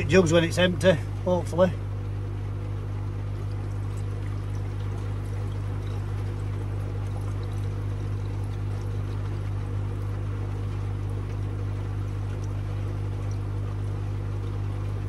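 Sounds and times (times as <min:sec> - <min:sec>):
low equipment hum: 0:00.0 - 0:15.0
water pouring into pipe: 0:03.1 - 0:15.0.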